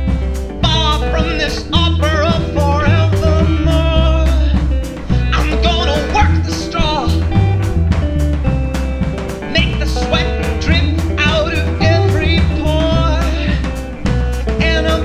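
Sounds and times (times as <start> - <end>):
man singing lead: 0.0 - 7.7, 9.4 - 15.0
rock band playing live: 0.0 - 15.0.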